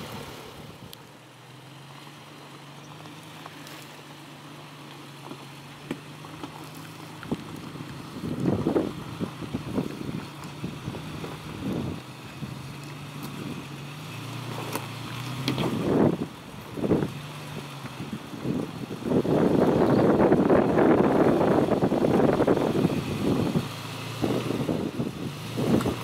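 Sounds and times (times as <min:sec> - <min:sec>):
truck engine at low revs: 0:00.0 - 0:26.0
stones clicking under tyres: 0:02.8 - 0:04.1, 0:04.8 - 0:20.1, 0:25.6 - 0:26.0
wind gusts on microphone: 0:07.3 - 0:13.8, 0:15.5 - 0:26.0.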